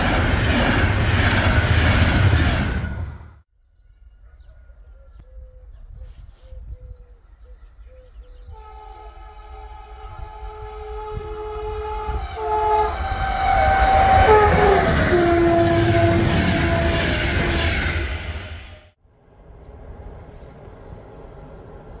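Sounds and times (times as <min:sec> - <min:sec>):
train wheels clattering on rails: 0:00.0 - 0:03.3
train horn two-tone blast: 0:08.5 - 0:18.9.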